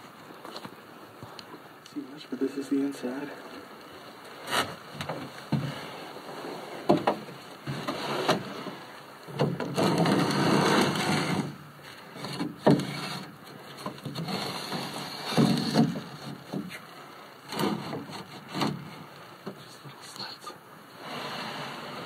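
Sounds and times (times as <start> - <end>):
rustling: 2.6 - 19.8
knocks and scrapes on wood: 6.8 - 8.8, 9.4 - 11.6, 12.2 - 16.8, 17.5 - 19.6.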